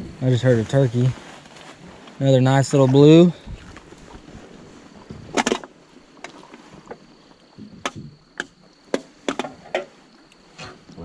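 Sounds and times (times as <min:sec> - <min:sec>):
knocks and clicks against boat: 0:05.0 - 0:10.0.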